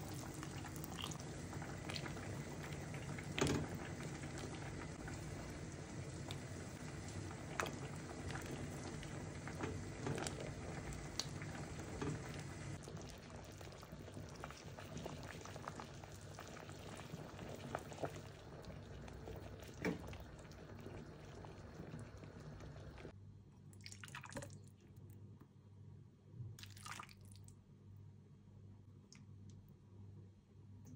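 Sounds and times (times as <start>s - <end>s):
soup bubbling: 0.0s - 23.2s.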